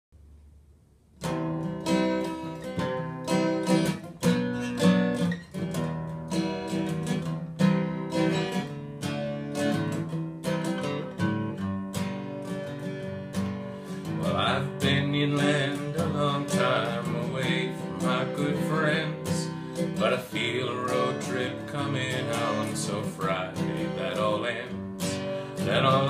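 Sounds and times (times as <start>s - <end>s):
acoustic guitar strumming chords: 1.2s - 26.0s.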